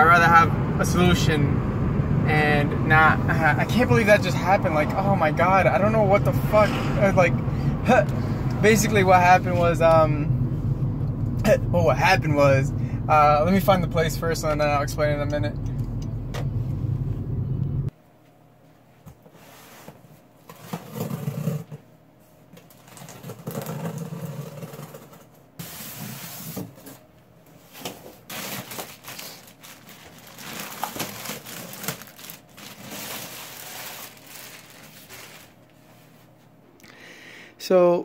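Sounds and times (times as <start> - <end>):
car cabin road noise: 0.0 - 17.9
cardboard and styrofoam scraping: 19.3 - 21.8, 22.7 - 27.0, 27.7 - 36.0
plastic bag crackling: 28.2 - 35.8.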